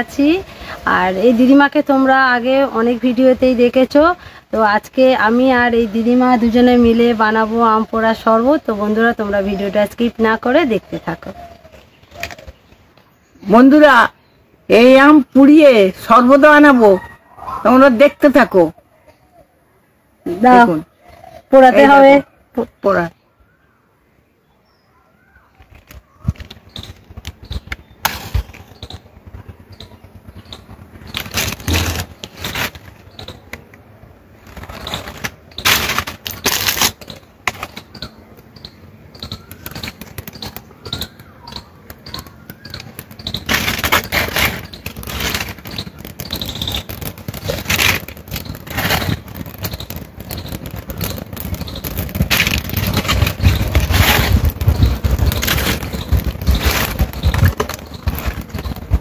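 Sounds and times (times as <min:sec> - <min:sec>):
dry leaves crackling in fire: 0:30.3 - 0:33.6, 0:34.4 - 0:37.8, 0:42.1 - 0:59.0.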